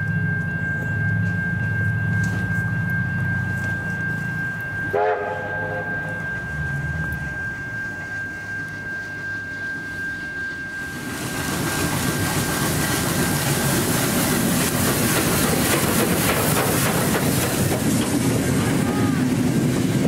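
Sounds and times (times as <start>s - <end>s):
train rumbling along track: 0.0s - 20.0s
wheels clicking over rails: 10.9s - 20.0s.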